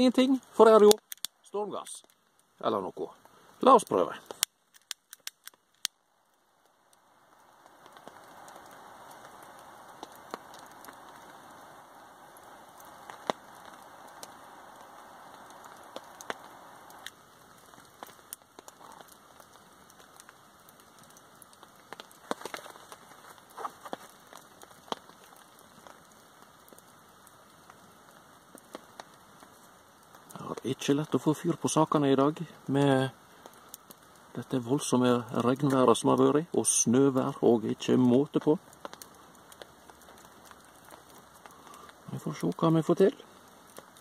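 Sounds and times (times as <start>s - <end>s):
light crackling: 0.0s - 44.0s
sharp clicks: 4.3s - 5.9s.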